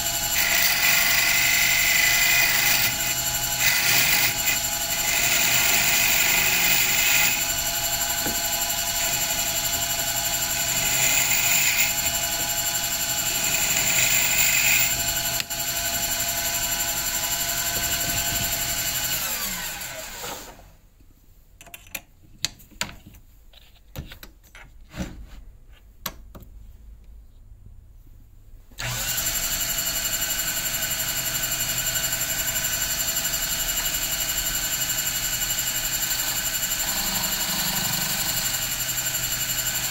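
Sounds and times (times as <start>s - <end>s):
cutter trimming leather: 0.0s - 15.5s
lathe motor running: 0.0s - 20.2s, 28.8s - 39.9s.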